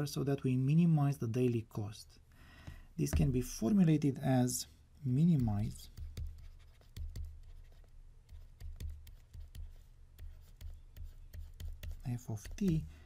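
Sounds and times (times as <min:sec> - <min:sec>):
low steady hum: 0:00.0 - 0:13.0
stylus tapping on tablet screen: 0:05.4 - 0:07.6, 0:08.3 - 0:12.9.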